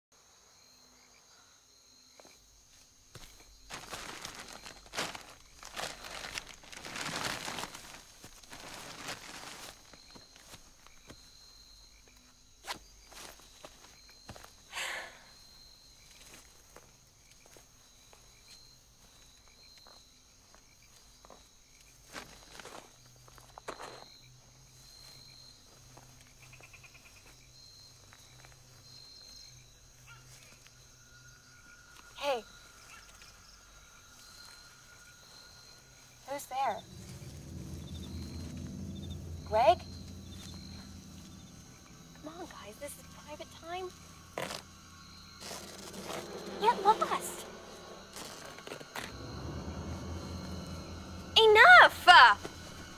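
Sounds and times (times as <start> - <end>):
faint high insect trill: 0.2 - 52.9
footsteps in undergrowth: 2.2 - 11.4, 16.1 - 24.1, 36.8 - 52.9
leaves and branches rustling: 2.7 - 11.7, 28.0 - 52.9
high insect note: 28.9 - 52.9.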